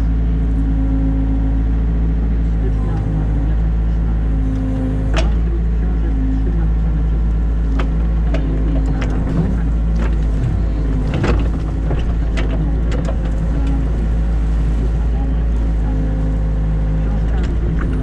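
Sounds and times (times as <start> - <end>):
diesel engine running: 0.0 - 18.0
knocks and rattles of excavator arm: 4.1 - 5.8, 6.7 - 18.0.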